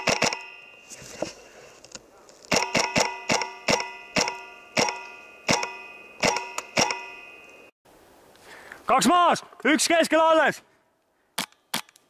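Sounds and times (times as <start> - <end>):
airsoft gun shots: 0.0 - 0.5, 2.5 - 7.1.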